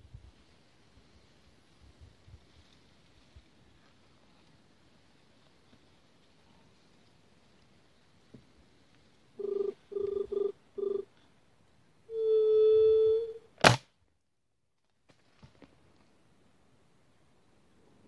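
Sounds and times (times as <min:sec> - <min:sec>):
low hooting dove call: 0:09.4 - 0:11.1, 0:12.1 - 0:13.5.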